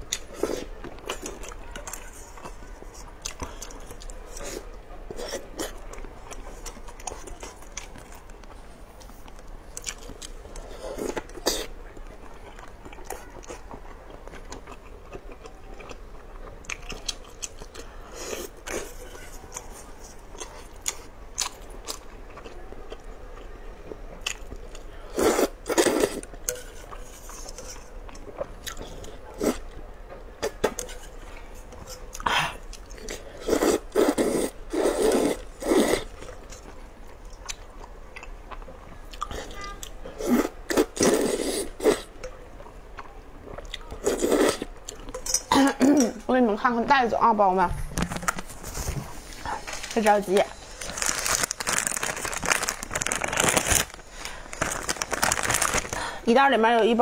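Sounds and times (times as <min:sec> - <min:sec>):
wet chewing and mouth clicks: 0:05.1 - 0:29.6, 0:36.1 - 0:41.1
slurping noodles: 0:25.1 - 0:26.3, 0:33.1 - 0:36.2, 0:40.1 - 0:42.1, 0:44.0 - 0:44.7.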